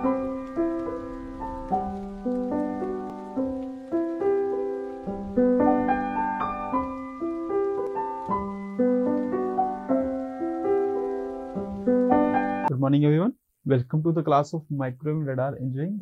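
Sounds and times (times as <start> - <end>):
piano melody: 0.0 - 12.7.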